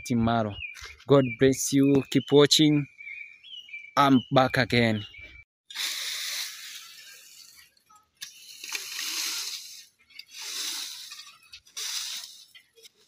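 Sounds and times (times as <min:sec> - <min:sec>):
raking dry leaves: 0:05.7 - 0:13.0.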